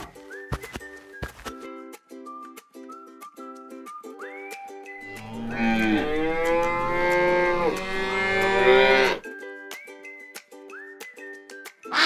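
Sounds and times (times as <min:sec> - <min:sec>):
light plucked background music: 0:00.0 - 0:12.0
cow mooing: 0:05.1 - 0:09.2.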